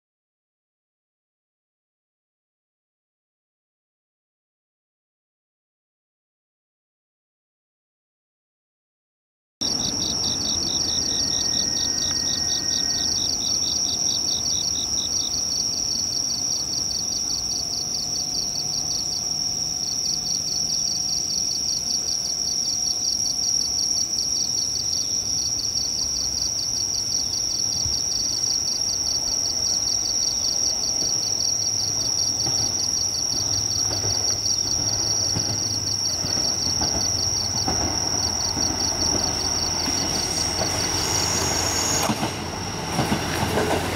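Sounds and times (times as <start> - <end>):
diesel railcar rumble: 9.6 - 23.3, 27.0 - 43.9
insects chirping: 9.6 - 43.9.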